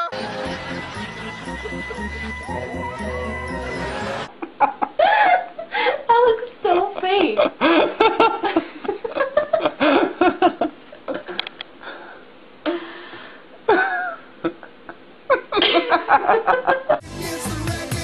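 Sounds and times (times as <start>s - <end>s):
falling pitched call: 0.0s - 4.3s
laughter: 4.3s - 6.1s, 6.7s - 11.5s, 13.7s - 17.0s.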